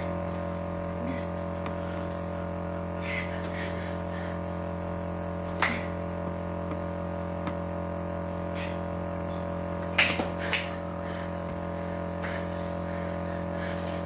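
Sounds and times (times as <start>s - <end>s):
steady drone of even tones: 0.0s - 13.7s
sharp slaps: 5.5s - 5.9s, 9.8s - 10.8s.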